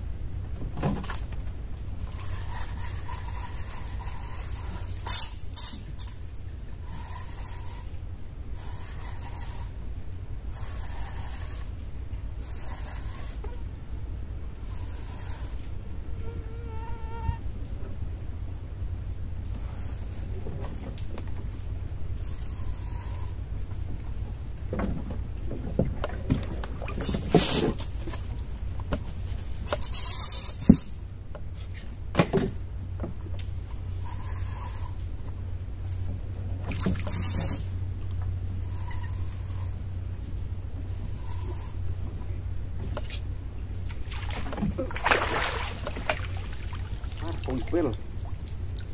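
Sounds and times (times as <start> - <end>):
constant low hum: 0.0 - 48.9
night insects chirring: 0.0 - 48.9
fish splashing: 43.9 - 48.9.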